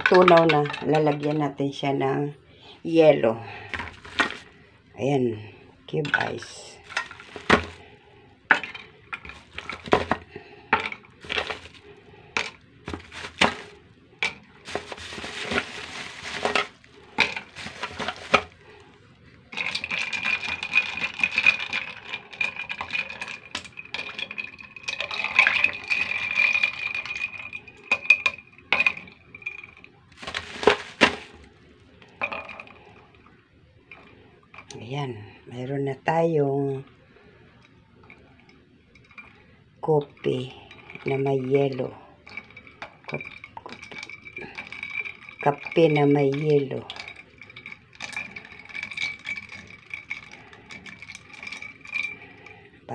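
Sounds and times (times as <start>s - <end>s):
ice rattling: 0.0s - 1.5s, 3.6s - 4.6s, 5.9s - 18.8s, 19.5s - 33.2s, 38.0s - 52.7s
ice cubes clinking in glass: 6.1s - 7.8s, 8.5s - 11.8s, 12.4s - 18.5s, 19.6s - 31.3s, 40.2s - 52.6s.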